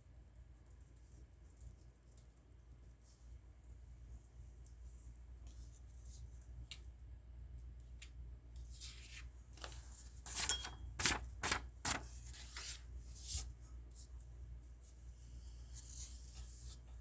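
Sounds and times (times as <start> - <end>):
paper rustling and tapping: 9.1 - 12.7.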